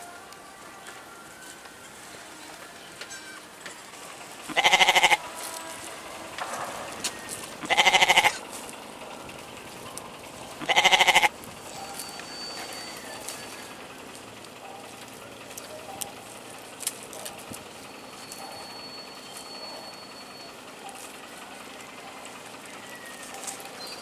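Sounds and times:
goat bleating: 4.4s - 8.6s, 10.5s - 11.4s.

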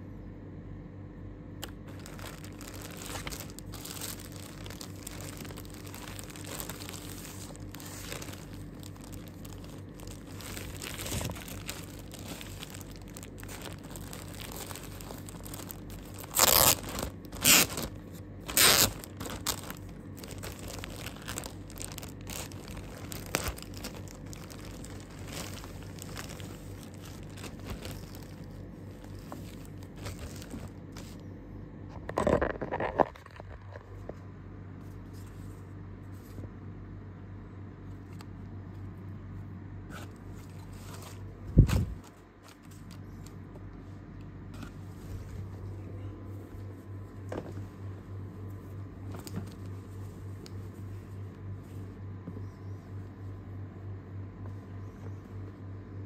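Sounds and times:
plastic bag crinkling: 1.6s - 31.2s.

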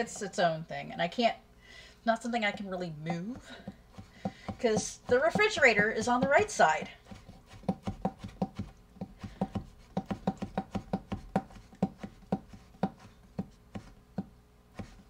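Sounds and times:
knife chopping on cutting board: 3.6s - 15.0s.

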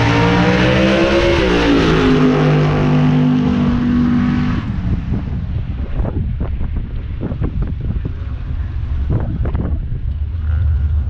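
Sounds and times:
vehicle engine humming: 0.0s - 11.0s
wind buffeting microphone: 3.4s - 11.0s.

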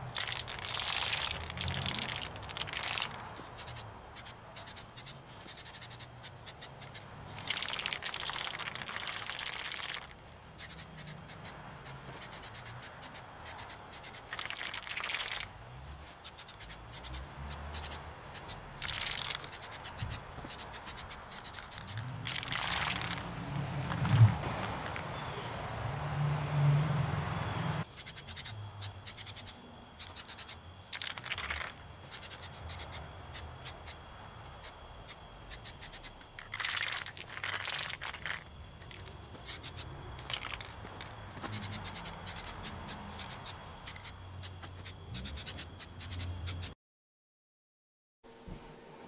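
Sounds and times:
spray can ball rattling: 0.0s - 11.6s, 12.2s - 15.5s, 16.2s - 23.3s, 27.9s - 34.0s, 35.1s - 46.8s
spray can hissing: 3.6s - 9.8s, 10.6s - 11.5s, 16.2s - 22.0s, 28.0s - 34.0s, 35.1s - 36.1s, 39.4s - 40.6s, 41.4s - 46.8s.

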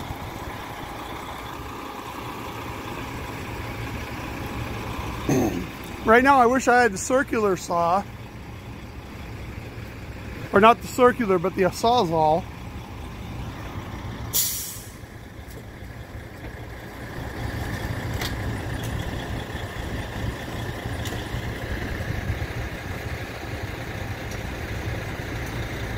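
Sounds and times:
truck engine running: 0.0s - 25.9s
air brake hiss: 14.3s - 15.0s.

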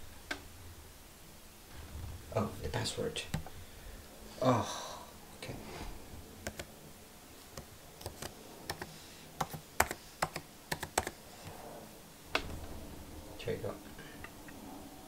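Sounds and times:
laptop keyboard typing: 6.4s - 6.7s, 7.5s - 11.2s.

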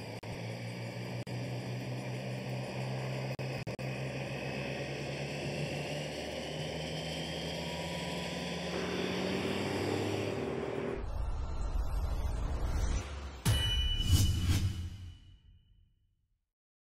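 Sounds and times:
engine drone: 0.0s - 13.4s.

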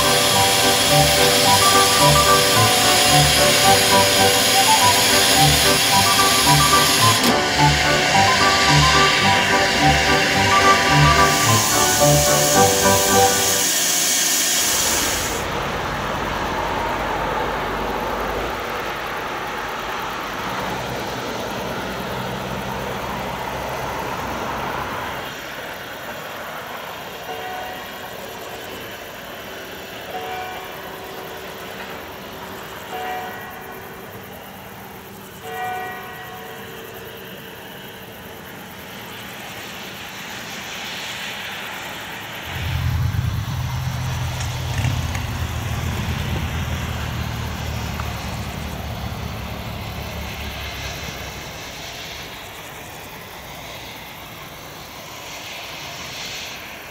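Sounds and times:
steam whistle toots: 0.0s - 15.6s
loud low engine drone: 0.0s - 25.6s, 42.3s - 52.1s
distant steam locomotive: 0.0s - 56.9s.

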